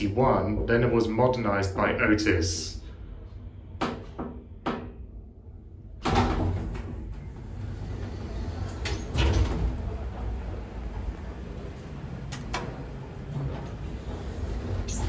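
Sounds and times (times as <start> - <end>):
elevator doors rumbling: 0.0 - 15.0
elevator doors clunk: 5.9 - 15.0.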